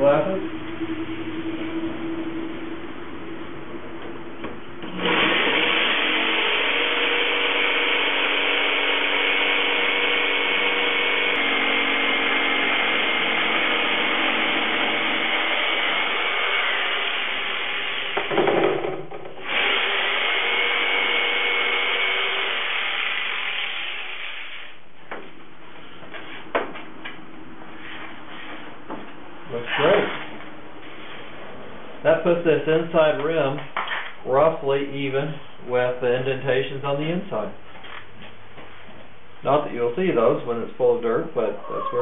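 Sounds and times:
jigsaw cutting plastic: 0:04.9 - 0:18.6, 0:19.4 - 0:24.5.

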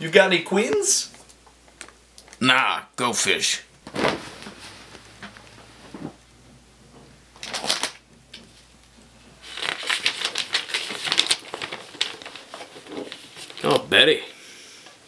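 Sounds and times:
comic book pages flipping: 0:03.8 - 0:06.2, 0:07.3 - 0:14.1
playing cards rustling: 0:07.3 - 0:14.2.

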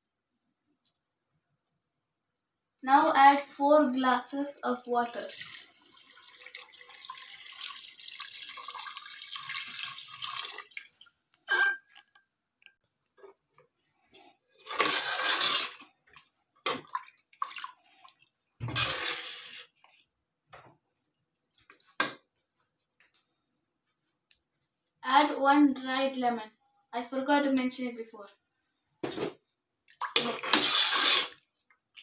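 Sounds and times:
water pouring into pot: 0:04.8 - 0:11.2, 0:14.6 - 0:19.8, 0:30.0 - 0:31.4
ladle stirring splashes and knocks: 0:05.3 - 0:22.4, 0:29.0 - 0:32.0.

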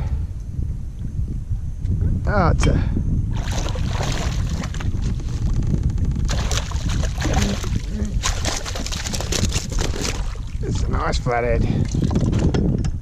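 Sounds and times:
fish thrashing and splashing: 0:03.4 - 0:10.6.

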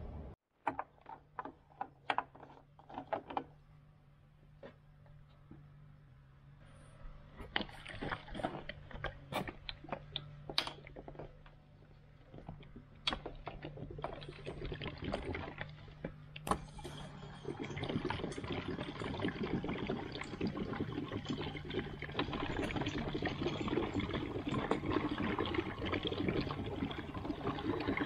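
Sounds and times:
spout clicks and knocks: 0:00.6 - 0:03.6, 0:07.4 - 0:11.6
fuel pouring into tank: 0:07.2 - 0:28.0.

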